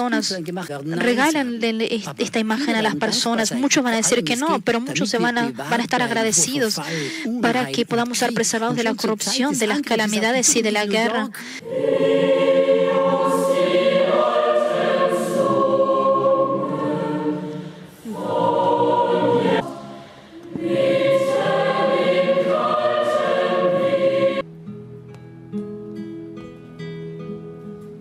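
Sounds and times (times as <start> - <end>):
choir singing: 11.6 - 24.4
plucked guitar notes: 24.5 - 28.0.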